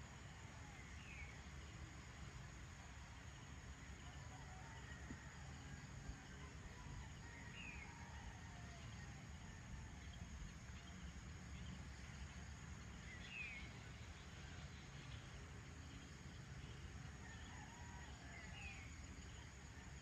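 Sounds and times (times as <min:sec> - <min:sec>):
low steady rumble: 0:00.0 - 0:20.0.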